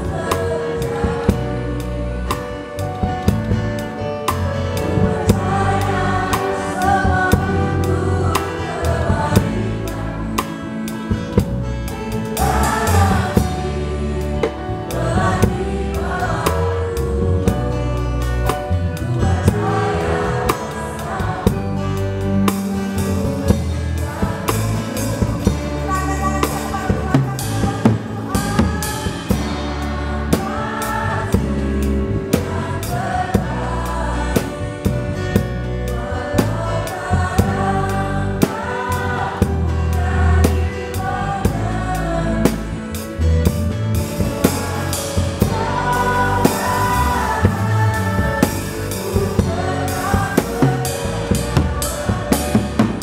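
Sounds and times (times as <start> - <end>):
women singing into microphones: 0.0 - 2.3, 4.8 - 10.6, 12.4 - 17.0, 19.0 - 22.2, 25.5 - 35.2, 36.0 - 42.7, 44.2 - 53.0
keyboard and guitar: 0.0 - 53.0
drum kit hits: 43.5 - 53.0.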